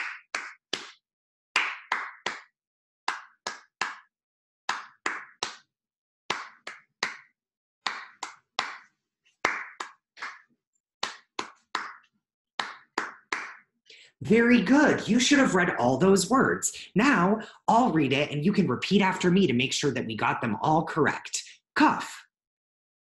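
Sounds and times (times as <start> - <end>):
person clapping hands: 0.0 - 1.0, 1.6 - 4.1, 4.7 - 5.7, 6.3 - 13.7.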